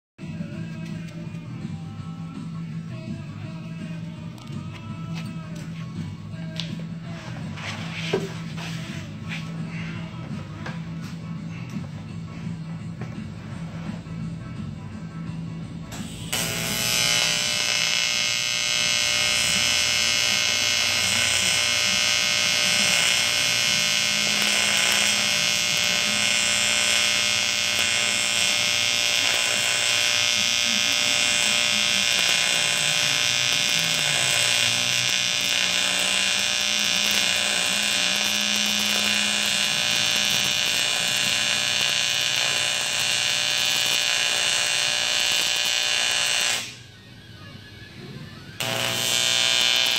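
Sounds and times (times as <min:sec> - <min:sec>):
welding arc buzzing and hissing: 0:15.9 - 0:46.9, 0:48.6 - 0:49.9.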